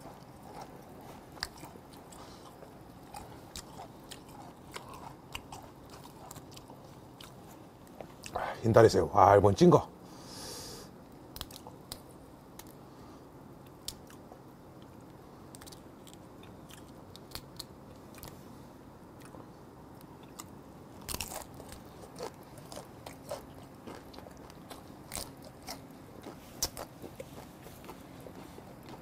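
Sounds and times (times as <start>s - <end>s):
chewing: 0.0s - 8.4s, 13.6s - 18.5s, 19.2s - 29.0s.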